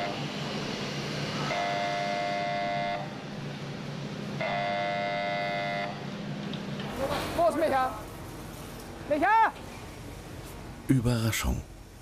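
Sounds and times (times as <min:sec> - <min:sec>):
buzzing warning horn: 0:00.0 - 0:00.3, 0:01.4 - 0:03.2, 0:04.4 - 0:06.1.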